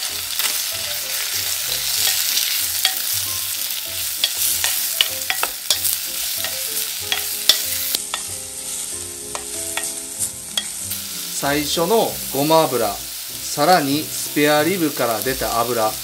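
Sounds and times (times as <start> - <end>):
food sizzling in oil: 0.0 - 16.0
spatula clacking against pot: 2.1 - 3.1, 4.2 - 8.3.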